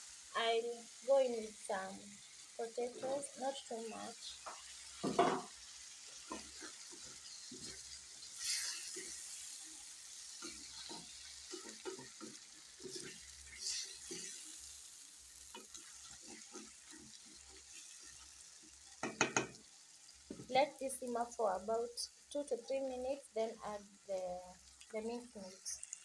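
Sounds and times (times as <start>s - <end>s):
food sizzling in a pan: 0.0s - 26.0s
wooden spoon scraping a pan: 4.3s - 14.8s, 15.5s - 19.6s.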